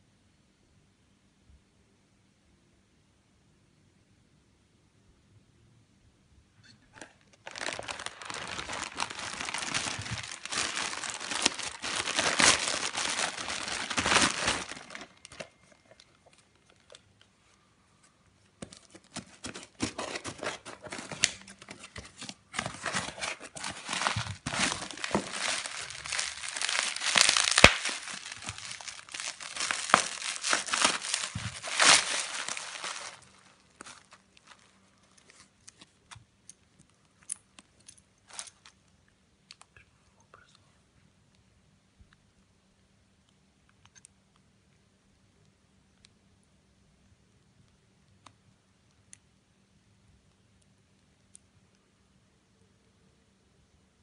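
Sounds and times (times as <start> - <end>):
plastic packaging crinkling and tearing: 7.0 - 17.0, 18.6 - 36.2, 38.3 - 38.8.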